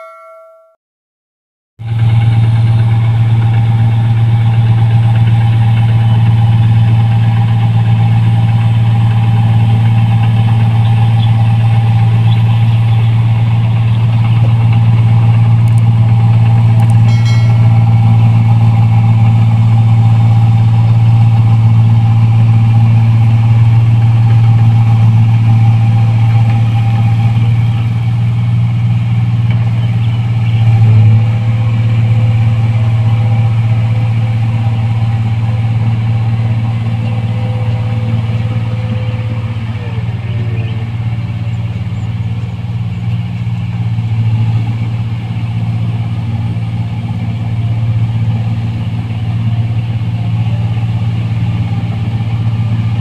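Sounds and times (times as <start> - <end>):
combine harvester engine hum: 1.8 - 53.0
high-pitched whine: 15.6 - 28.2.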